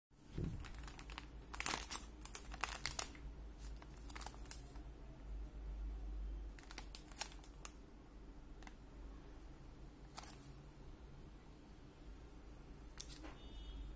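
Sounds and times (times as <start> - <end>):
plastic pouch crinkling: 0.4 - 4.9, 6.5 - 7.8, 10.1 - 10.5.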